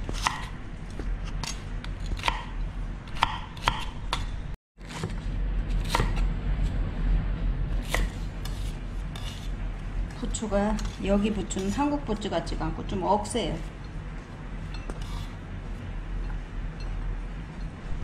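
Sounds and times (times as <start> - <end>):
knife chopping on wooden board: 0.0 - 0.6, 1.4 - 4.4
steady low hum: 0.0 - 18.0.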